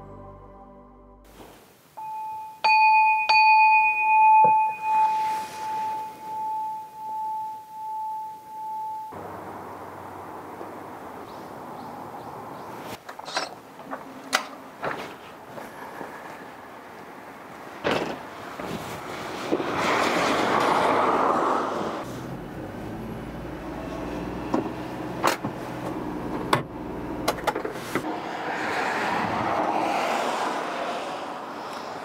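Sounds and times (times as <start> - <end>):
bell-like chime ringing: 2.0 - 9.2
hiss of outdoor air: 4.8 - 6.4.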